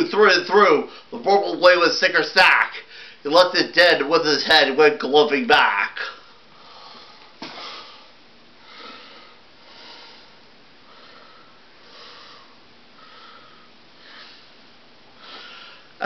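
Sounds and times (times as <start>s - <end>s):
person breathing fast: 6.3s - 16.0s.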